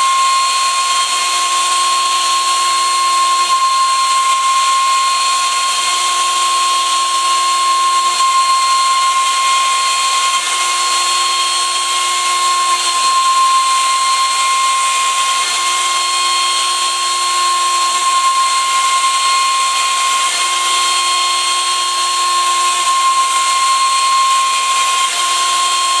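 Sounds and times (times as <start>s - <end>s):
router spindle whining: 0.0s - 26.0s.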